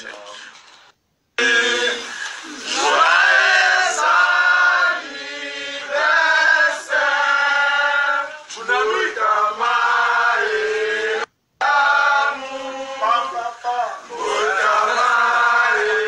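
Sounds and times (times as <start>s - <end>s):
group singing unaccompanied: 1.4s - 16.0s.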